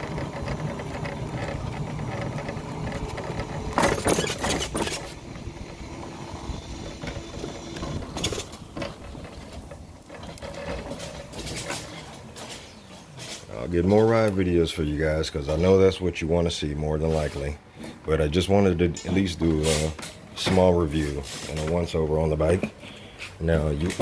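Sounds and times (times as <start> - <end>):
electric motorbike motor whining: 0.0 - 13.8
rattly mechanical noise: 0.0 - 14.3.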